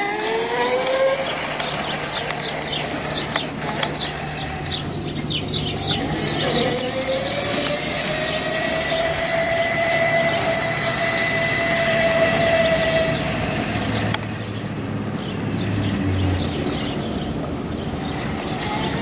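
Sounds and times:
electric motor whining: 0.0s - 14.2s.

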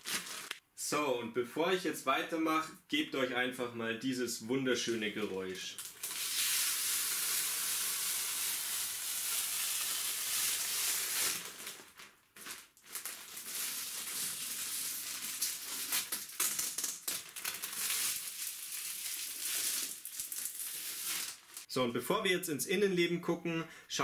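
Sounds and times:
plastic wrap crinkling: 0.0s - 0.6s, 5.0s - 21.7s.

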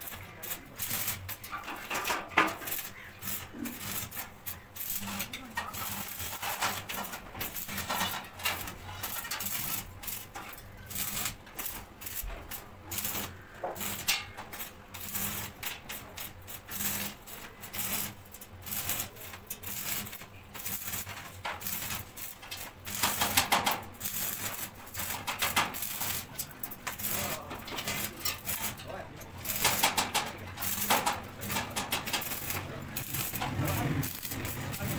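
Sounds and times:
arc welding crackling: 0.0s - 34.9s.

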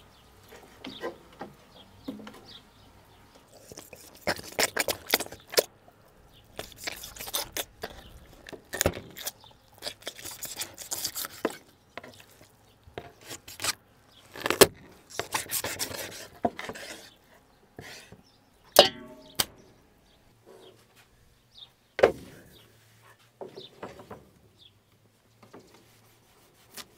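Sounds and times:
knife sawing through chicken: 3.5s - 5.7s, 6.6s - 12.4s, 13.2s - 13.8s, 15.1s - 17.2s
bones cracking: 3.5s - 12.6s, 13.2s - 16.0s.

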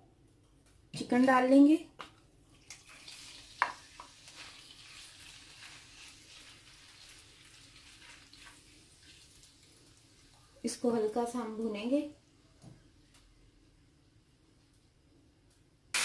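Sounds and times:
chicken sizzling in oil: 2.6s - 10.6s.

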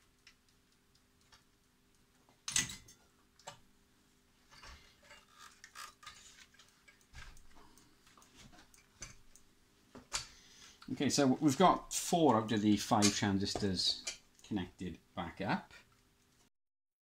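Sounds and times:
small clicks and rustles: 0.0s - 3.7s, 4.4s - 10.9s.

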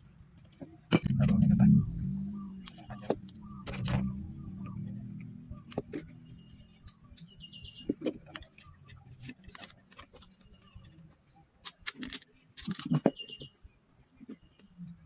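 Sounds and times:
bird chirping trill: 1.1s - 11.8s, 12.9s - 15.0s
light clicks and knocks of handling: 6.8s - 15.0s.

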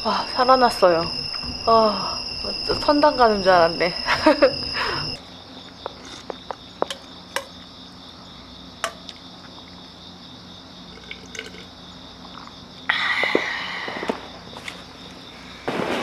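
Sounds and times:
crickets chirring: 0.0s - 16.0s
burst of noise: 15.6s - 16.0s.

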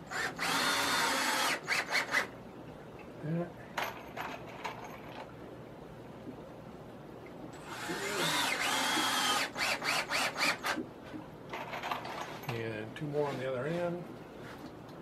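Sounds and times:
cordless drill driving screw: 0.1s - 2.3s, 7.6s - 10.8s.

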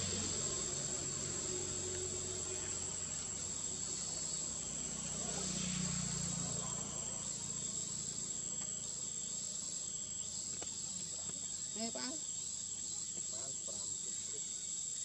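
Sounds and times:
insects trilling: 0.0s - 15.0s.

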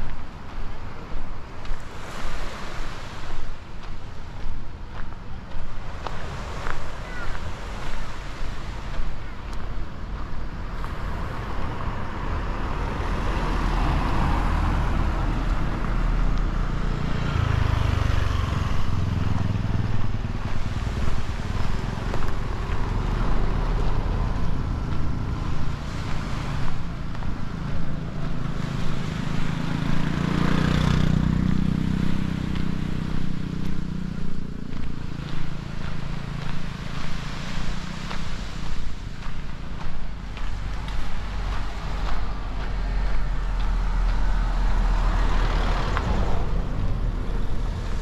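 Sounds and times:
wind on microphone: 0.0s - 48.0s
motor engine passing by: 10.8s - 48.0s.

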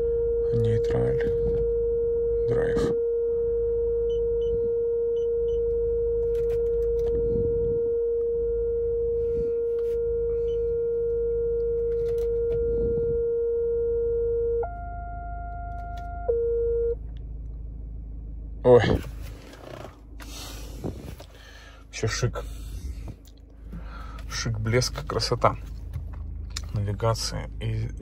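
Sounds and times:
parking sensor warning tone: 0.0s - 17.0s.

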